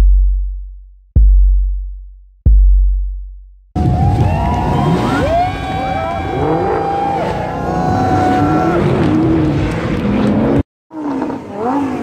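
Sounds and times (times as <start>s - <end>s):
sports car engines revving: 4.5s - 12.0s.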